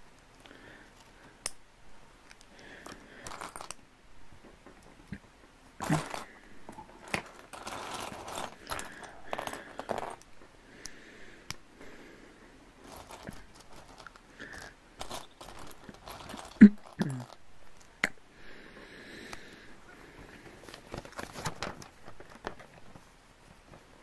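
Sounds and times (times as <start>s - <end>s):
plastic bricks clicking and rattling: 2.8s - 3.8s, 5.8s - 10.3s, 12.9s - 17.9s.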